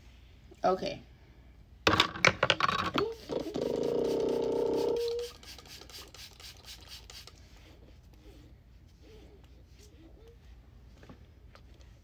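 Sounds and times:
hairbrush rasping through hair: 3.0 - 8.4.

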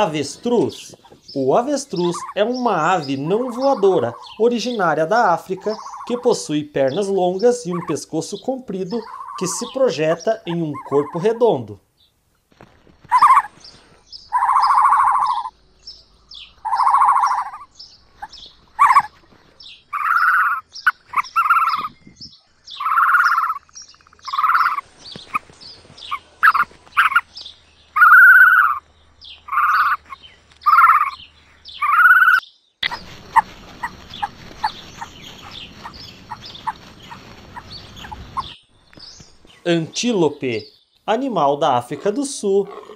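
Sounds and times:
high chirps: 0.0 - 8.0, 14.2 - 15.6, 16.3 - 19.1, 19.9 - 25.4, 26.1 - 28.8, 29.4 - 39.9
ostrich chicks rounded calls: 0.0 - 11.5, 13.0 - 42.9.

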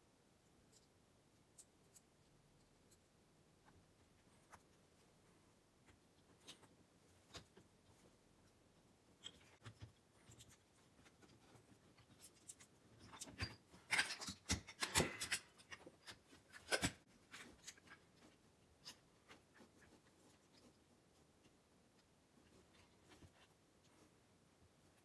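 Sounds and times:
light clicks and knocks of parts: 5.8 - 24.2.

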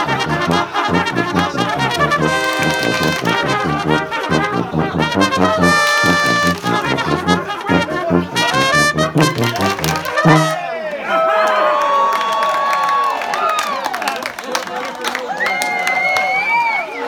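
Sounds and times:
brass polka music: 0.0 - 10.7.

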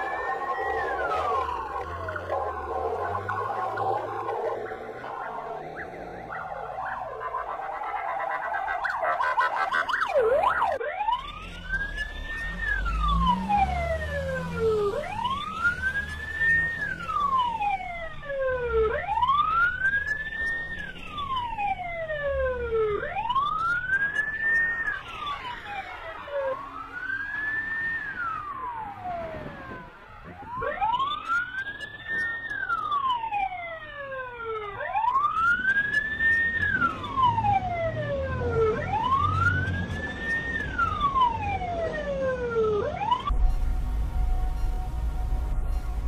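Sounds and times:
police siren wailing: 0.0 - 46.0
low rumble: 43.3 - 46.0.

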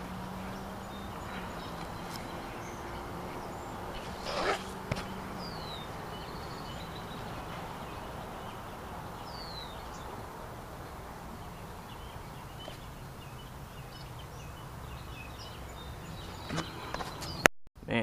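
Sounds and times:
bird whistling: 0.5 - 10.1.

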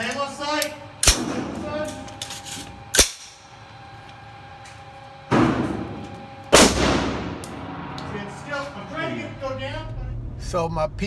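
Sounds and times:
steady hum: 0.0 - 11.0
gunshots echoing indoors: 5.3 - 8.9.

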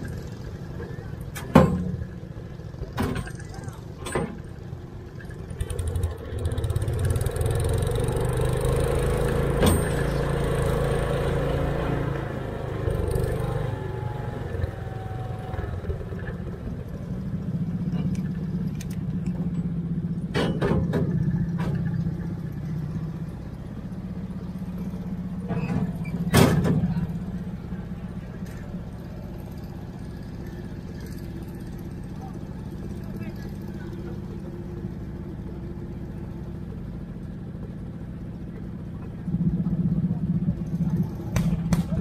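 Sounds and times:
tractor engine under load: 0.0 - 42.0
metal clanks: 2.8 - 4.6, 9.5 - 10.2, 17.8 - 22.1.

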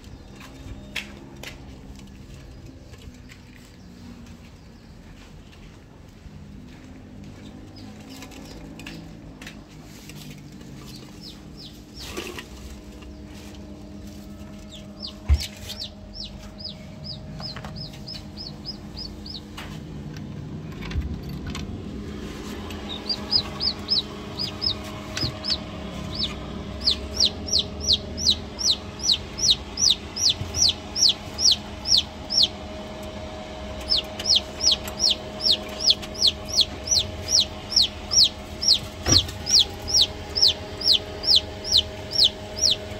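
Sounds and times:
chicks peeping: 6.8 - 19.8, 22.0 - 42.9
steady hum: 10.8 - 42.9.

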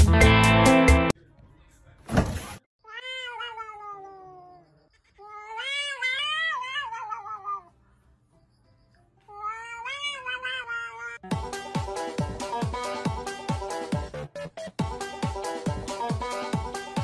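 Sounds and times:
cats yowling: 2.8 - 7.8, 9.3 - 11.2.

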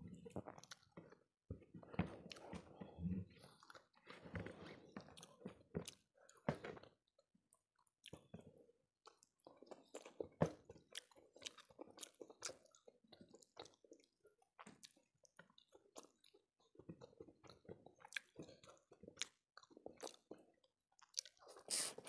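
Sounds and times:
wet chewing: 7.8 - 22.0.

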